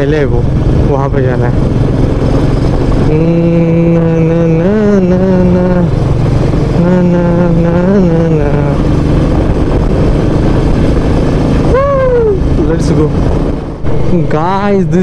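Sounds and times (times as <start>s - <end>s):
motorcycle engine cruising: 0.0s - 15.0s
person humming: 11.7s - 12.4s.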